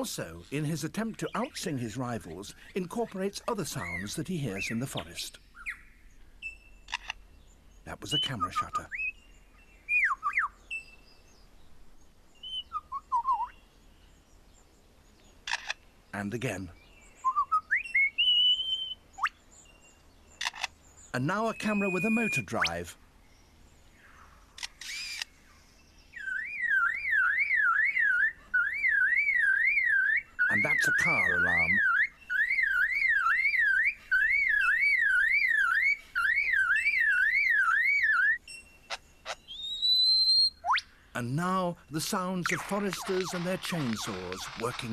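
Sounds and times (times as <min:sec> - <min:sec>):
bird singing whistled notes: 0:02.5 - 0:15.8, 0:16.7 - 0:44.9
bird mimicking car alarm whistle: 0:21.5 - 0:22.8, 0:26.2 - 0:40.9.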